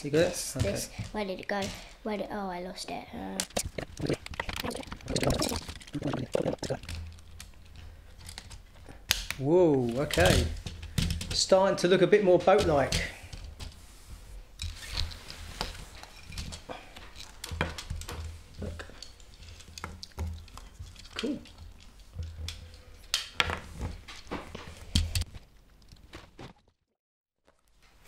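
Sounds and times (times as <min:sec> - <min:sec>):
plastic pieces clicking and clattering: 0:03.4 - 0:11.6.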